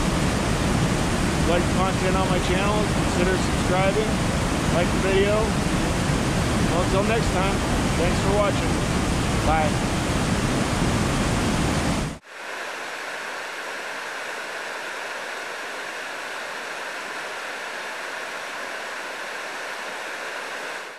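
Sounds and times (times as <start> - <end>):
heavy low rumble: 0.0 - 12.2
fast creek rushing: 0.0 - 20.9.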